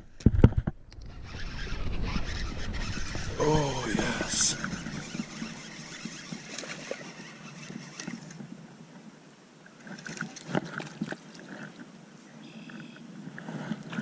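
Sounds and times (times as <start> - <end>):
wind noise: 0.0 - 6.8.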